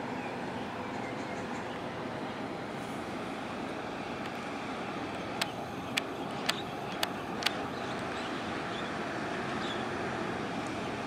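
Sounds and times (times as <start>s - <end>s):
sharp ticks: 5.4s - 7.6s.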